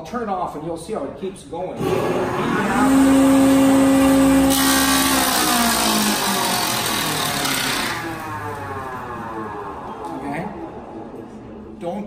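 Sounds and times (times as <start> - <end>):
harsh cutting noise: 1.8 - 10.8
planer motor coasting down: 1.8 - 11.8.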